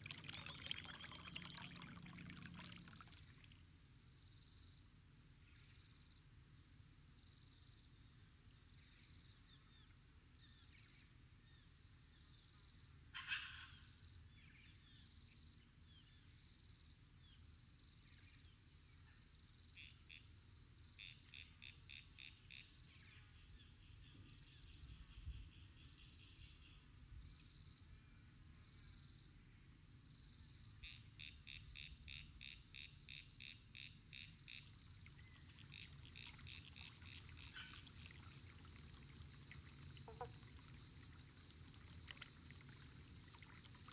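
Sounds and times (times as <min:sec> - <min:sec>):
frog chirping: 0:30.9 - 0:43.9
frog clicking calls: 0:30.9 - 0:43.9.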